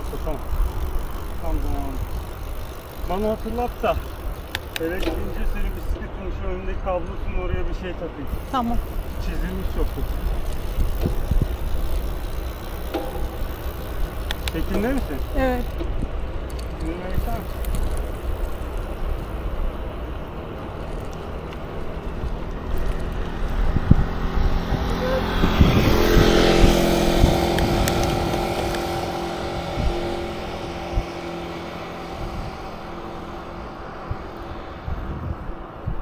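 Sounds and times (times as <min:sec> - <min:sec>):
vehicle engine passing by: 0:20.3 - 0:35.9.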